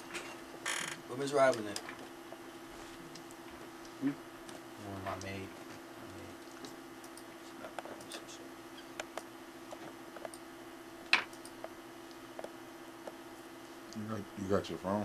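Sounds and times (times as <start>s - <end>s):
steady low hum: 0.0s - 15.0s
faint clicks and taps: 3.1s - 8.3s, 8.9s - 10.4s, 11.1s - 13.2s.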